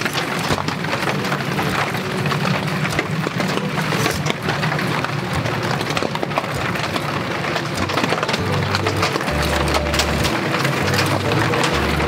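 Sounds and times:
fire crackling: 0.0s - 12.0s
heavy rain patter: 0.0s - 12.0s.

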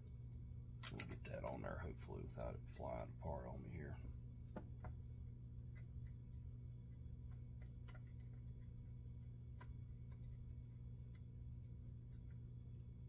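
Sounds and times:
steady low hum: 0.0s - 13.0s
screwdriver and small metal parts clicking: 0.8s - 1.2s.

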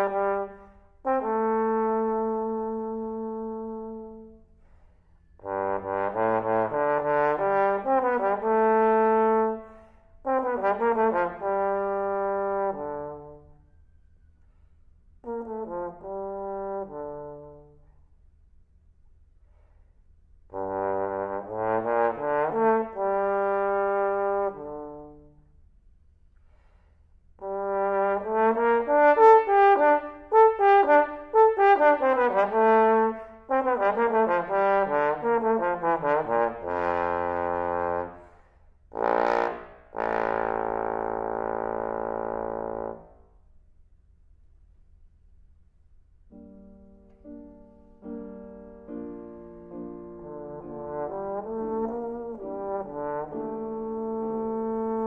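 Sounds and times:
trombone playing slow melody: 0.0s - 4.5s, 5.4s - 13.6s, 15.2s - 18.0s, 20.4s - 25.4s, 27.4s - 43.3s, 48.0s - 55.0s.

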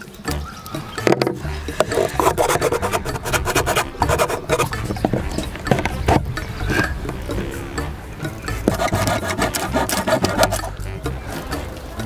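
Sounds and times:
hard plastic scraping: 1.0s - 7.5s, 8.6s - 10.8s.

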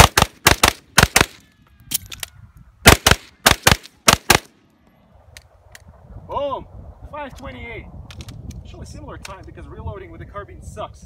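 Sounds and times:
carbine gunshots: 0.0s - 1.4s, 2.8s - 4.6s
magazine change clicks: 8.1s - 8.6s.

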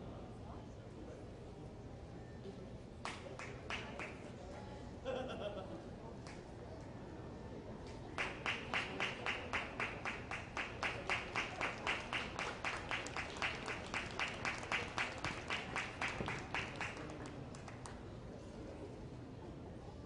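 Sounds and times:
hands clapping: 3.0s - 4.2s, 6.2s - 6.4s, 8.2s - 18.0s.

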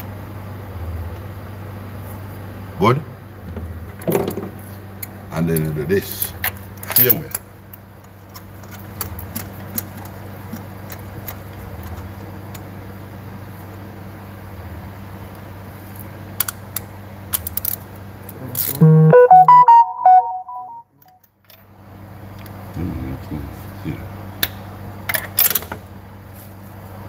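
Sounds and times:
short electronic tune: 18.8s - 20.8s.

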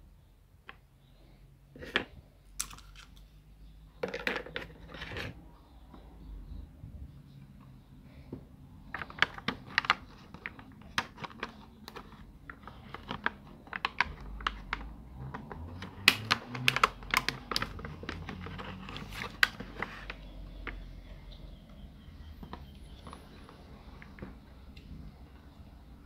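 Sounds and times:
plastic packaging crackling: 8.9s - 20.2s.

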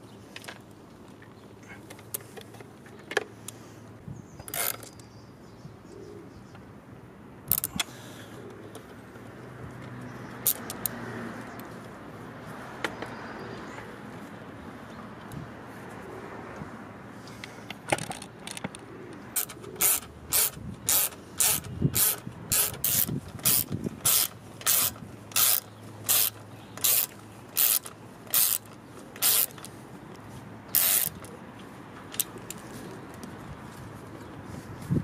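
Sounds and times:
ratchet wrench clicking: 4.4s - 5.0s, 7.5s - 7.8s, 10.4s - 11.0s, 19.4s - 29.7s, 30.7s - 31.3s.

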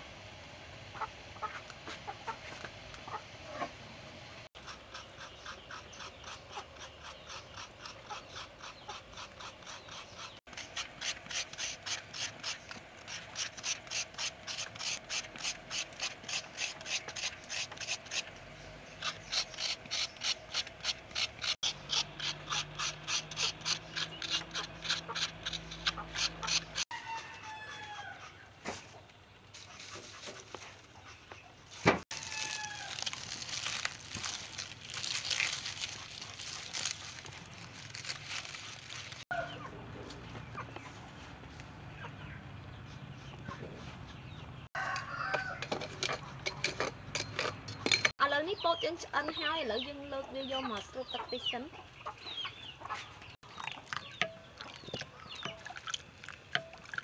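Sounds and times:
coconut grating scrapes: 4.6s - 27.9s.

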